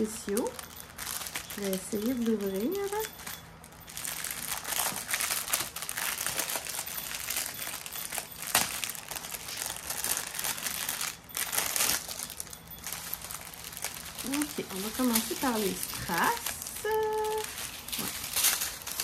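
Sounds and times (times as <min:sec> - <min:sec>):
plastic packaging crinkling: 0:00.0 - 0:19.0.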